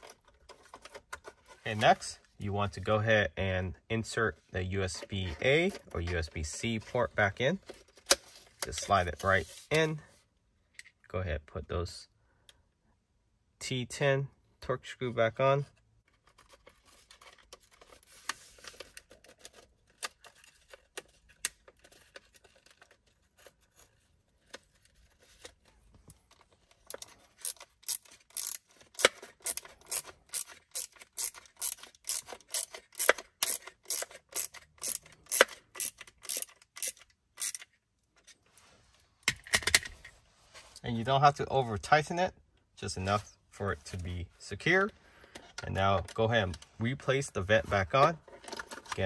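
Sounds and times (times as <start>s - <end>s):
screwdriver scraping: 26.9s - 37.7s
screwdriver ratchet clicks: 27.4s - 37.6s.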